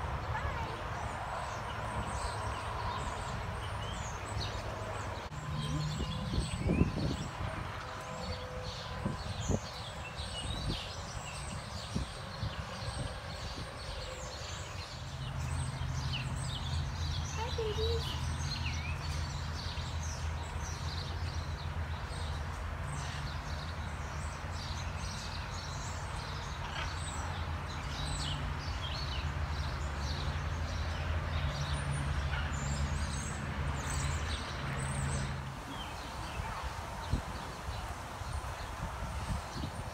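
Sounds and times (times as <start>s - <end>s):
outdoor ambience: 0.0s - 39.9s
small birds chirping: 8.7s - 39.9s.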